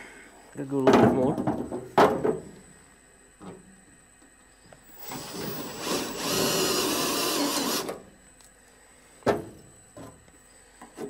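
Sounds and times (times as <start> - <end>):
cordless drill whining: 4.8 - 8.0
drill clanking on metal: 4.8 - 8.0.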